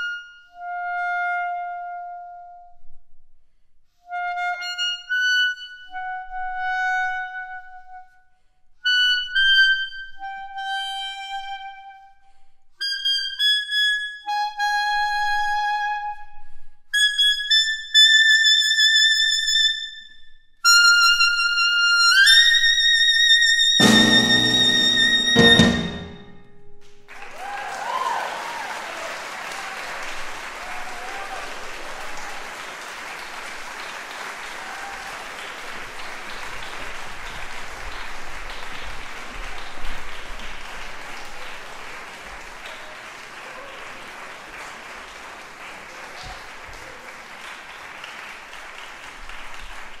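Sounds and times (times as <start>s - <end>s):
clarinet holding note: 20.6s - 26.6s
audience cheering: 23.8s - 26.2s, 27.1s - 50.0s
piano and drum chords: 23.8s - 26.5s
audience applauding: 26.9s - 50.0s.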